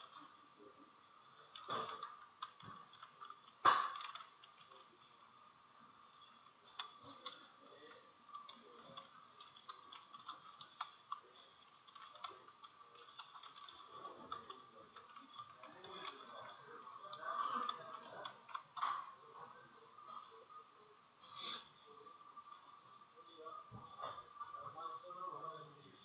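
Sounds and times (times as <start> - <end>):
faint high hum: 0.0 - 26.0
keyboard typing: 1.4 - 5.0, 6.2 - 20.4.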